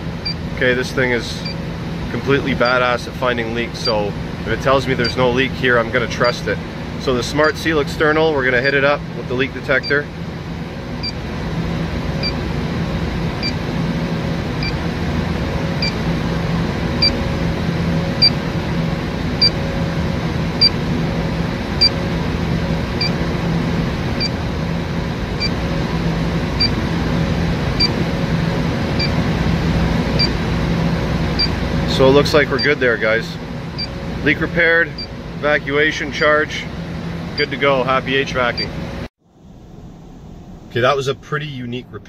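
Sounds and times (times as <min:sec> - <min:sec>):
refrigeration unit hum: 0:00.0 - 0:42.0
leak detector beeping: 0:00.2 - 0:00.5, 0:01.4 - 0:01.6, 0:03.8 - 0:04.1, 0:04.7 - 0:05.5, 0:07.2 - 0:07.8, 0:09.7 - 0:10.0, 0:11.0 - 0:11.2, 0:12.2 - 0:12.4, 0:13.4 - 0:13.6, 0:14.6 - 0:14.8, 0:15.8 - 0:16.0, 0:17.0 - 0:17.3, 0:18.2 - 0:18.4, 0:19.4 - 0:19.7, 0:20.6 - 0:20.8, 0:21.8 - 0:22.0, 0:23.0 - 0:23.2, 0:24.2 - 0:24.4, 0:25.4 - 0:25.6, 0:26.6 - 0:26.8, 0:27.8 - 0:28.0, 0:29.0 - 0:29.2, 0:30.2 - 0:30.4, 0:31.3 - 0:32.8, 0:33.8 - 0:35.2, 0:37.4 - 0:37.6, 0:38.5 - 0:38.7.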